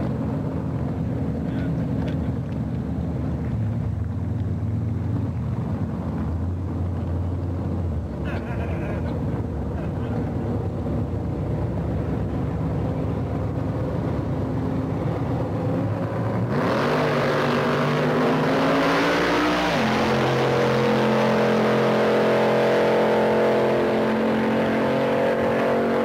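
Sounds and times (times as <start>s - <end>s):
drag car engine revving: 5.6s - 26.0s.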